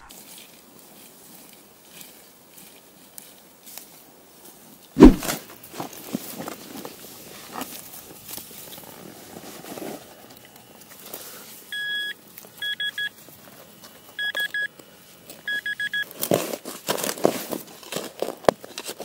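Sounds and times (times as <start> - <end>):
metal detector beeping: 11.7 - 13.2, 13.8 - 14.8, 15.4 - 16.1.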